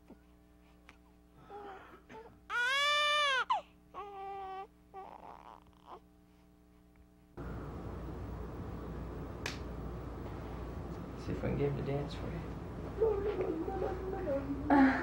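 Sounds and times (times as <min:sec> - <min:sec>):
newborn baby crying: 0:01.5 - 0:06.0.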